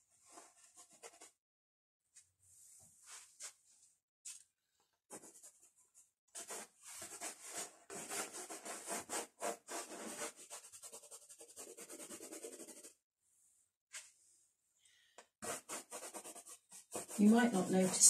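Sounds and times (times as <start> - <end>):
crayon scratching on canvas: 6.4 - 13.0, 15.4 - 18.0.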